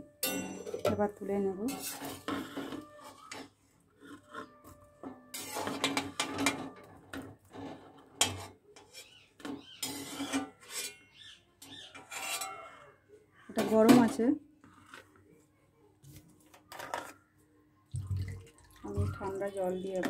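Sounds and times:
metal spoon scraping a pan: 1.6s - 12.8s.

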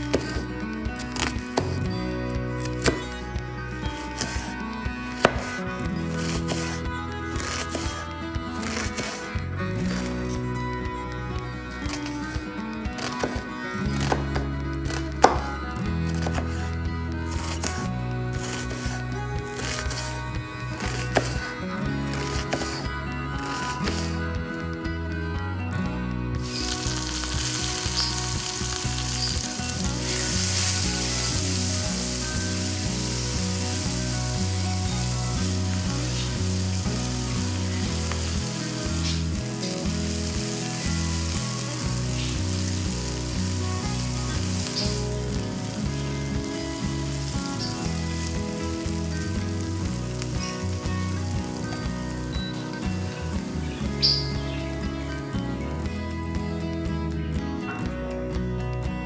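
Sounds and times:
onions sizzling in oil: 26.4s - 54.5s.

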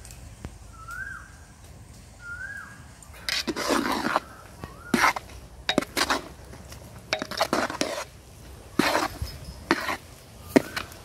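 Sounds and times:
metal utensils scraping a pot: 3.2s - 6.4s, 7.1s - 8.2s, 8.8s - 11.0s.

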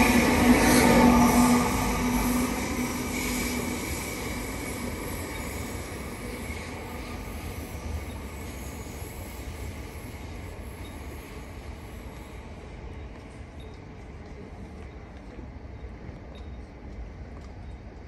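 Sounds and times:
steady hum: 0.0s - 11.7s
electric train running: 0.0s - 14.2s.

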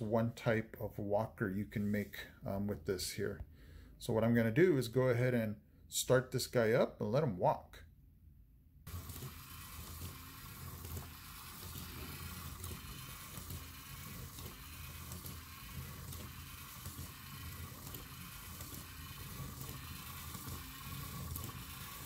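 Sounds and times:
robot motors and gears whirring: 8.9s - 22.0s.

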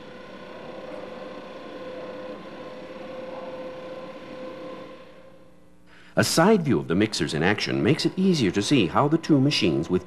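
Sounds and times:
mixer motor and gears whining: 0.0s - 5.4s.

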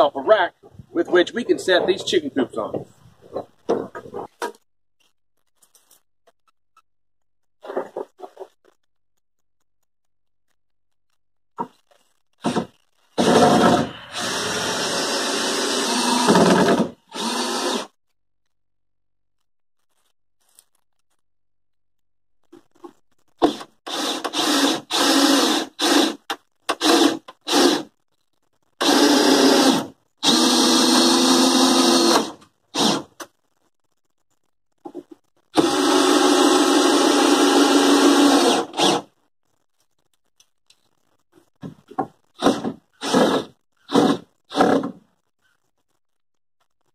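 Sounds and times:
power drill driving screws: 13.2s - 17.9s, 23.4s - 27.9s, 28.8s - 33.1s, 35.6s - 39.1s, 42.4s - 45.0s.

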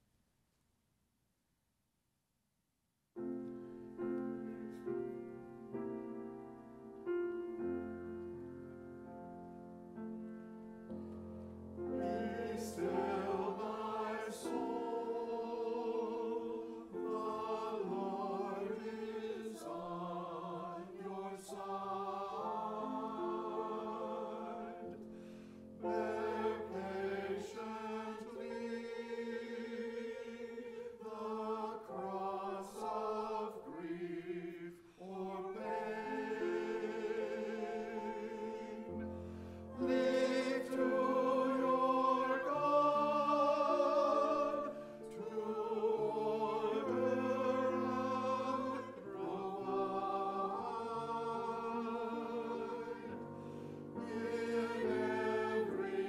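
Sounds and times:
grand piano accompaniment: 3.2s - 56.0s
choir singing in harmony: 11.8s - 56.0s.

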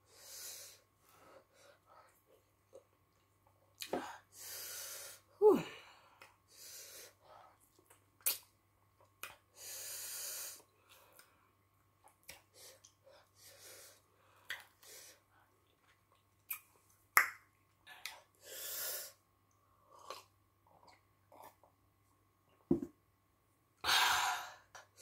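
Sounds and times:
wet lip smacks and mouth clicks: 7.7s - 9.4s, 12.0s - 13.0s, 14.4s - 14.8s, 15.7s - 18.2s.

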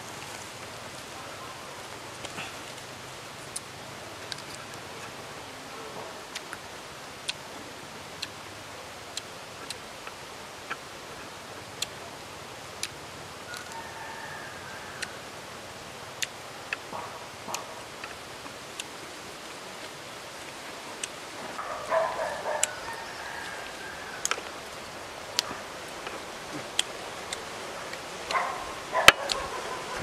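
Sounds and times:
animal call: 21.4s - 27.4s, 28.3s - 30.0s.

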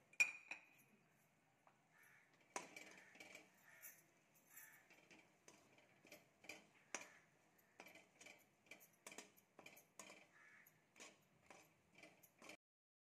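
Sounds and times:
spatula scraping a pan: 4.6s - 12.6s.

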